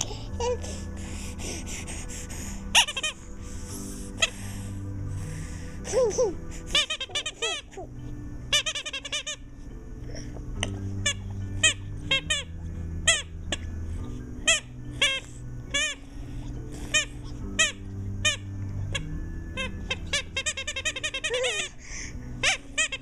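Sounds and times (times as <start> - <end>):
rubber squeaky toy squeaking: 2.8 - 3.2, 6.7 - 7.9, 8.5 - 9.4, 11.0 - 12.5, 19.6 - 21.7, 22.4 - 23.0.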